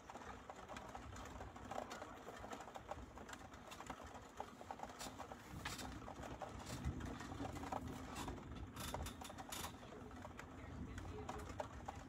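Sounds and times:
rain patter: 0.0s - 12.0s.

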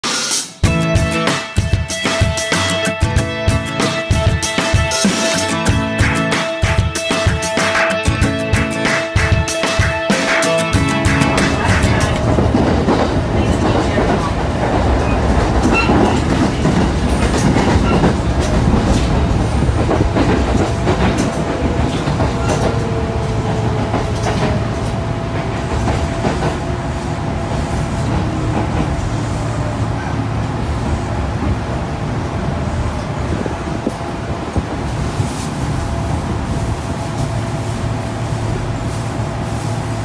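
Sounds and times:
train rumble: 3.0s - 40.0s
wheels clacking over rail joints: 10.8s - 26.8s.

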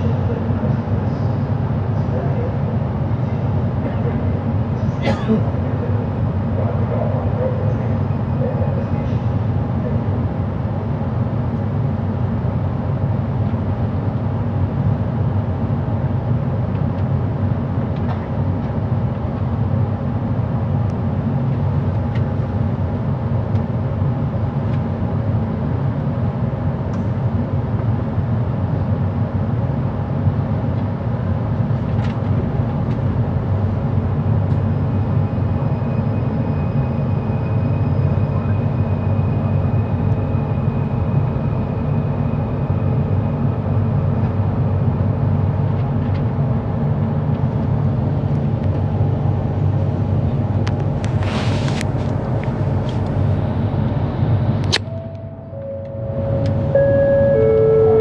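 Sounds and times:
train rumbling on track: 0.0s - 58.0s
distorted motor hum: 52.2s - 58.0s
high thin motor whine: 54.7s - 58.0s.

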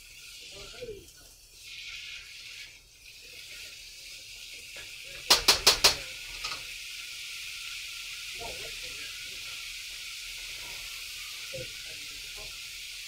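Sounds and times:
food sizzling in a wok: 0.0s - 13.0s
utensil knocking on wok: 5.2s - 6.6s.

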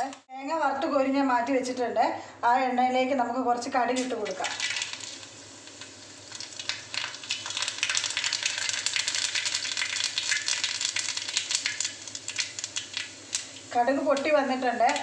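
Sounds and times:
seeds popping in hot oil: 3.9s - 15.0s.

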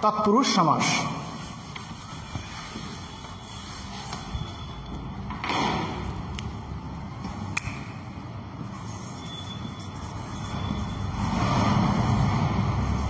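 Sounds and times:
marker writing on whiteboard: 1.0s - 5.1s, 8.6s - 11.1s
faint marker squeak: 2.3s - 5.0s, 8.8s - 11.1s.

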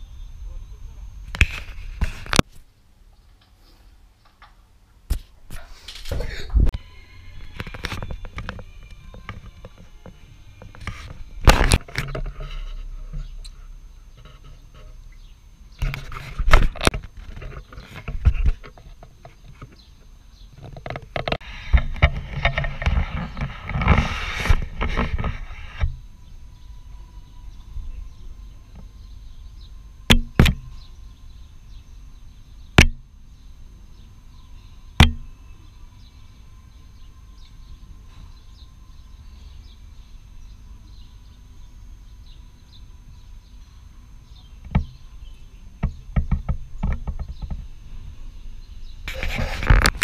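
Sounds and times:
low background noise: 0.0s - 50.0s
rustling and knocking on camera: 20.6s - 26.0s, 44.6s - 45.0s, 45.8s - 47.8s.

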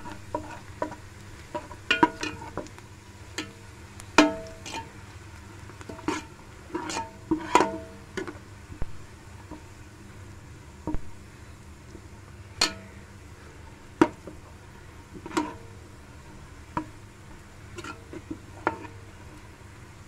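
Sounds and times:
metal spoon scraping a pot: 0.1s - 0.9s, 6.0s - 7.8s.

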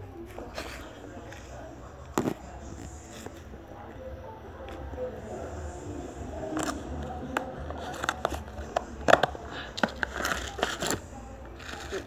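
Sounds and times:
plastic tub clicking and rustling: 6.5s - 11.0s.

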